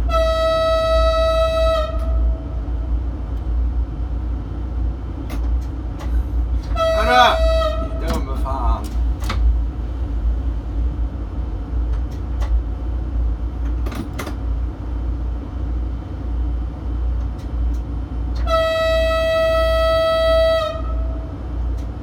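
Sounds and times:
train horn high note: 0.0 - 2.9, 6.6 - 8.8, 18.3 - 21.4
train cab rumbling: 0.0 - 22.0.

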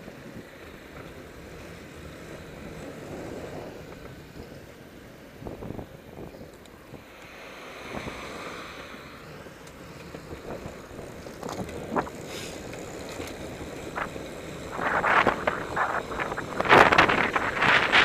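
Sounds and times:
wind rushing over microphone: 5.3 - 18.0.

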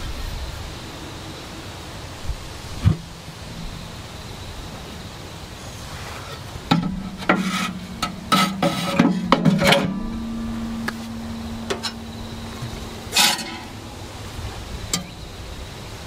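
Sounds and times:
metal objects clanking and scraping: 6.3 - 15.2.

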